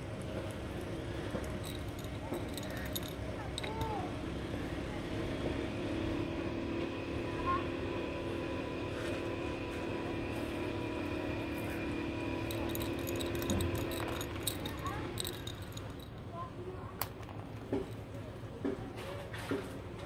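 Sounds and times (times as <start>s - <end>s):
mechanical hum with low rumble: 0.0s - 20.0s
stems clicking in glass bottle: 1.4s - 4.0s, 12.4s - 16.3s.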